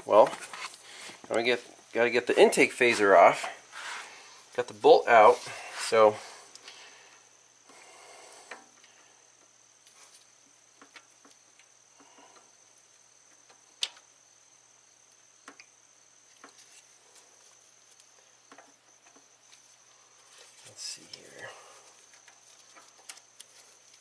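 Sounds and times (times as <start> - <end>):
faint high-pitched whine: 0.0 - 24.0.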